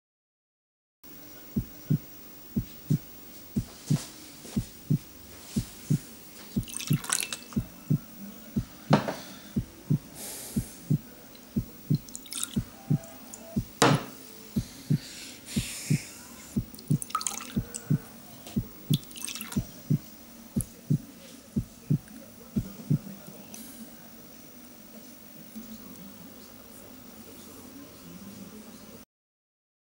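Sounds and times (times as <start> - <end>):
heartbeat thumps: 1.5 - 7.0, 7.6 - 23.1
sharp knocks: 13.6 - 14.2.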